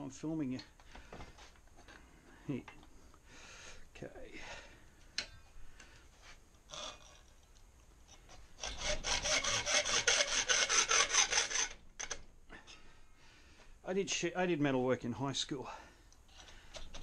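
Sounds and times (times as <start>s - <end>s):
hacksaw cutting metal: 8.6s - 12.2s.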